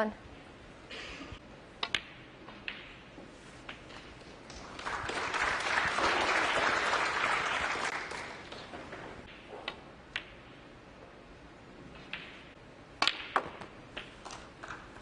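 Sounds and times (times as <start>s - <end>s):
audience applauding: 4.5s - 8.7s.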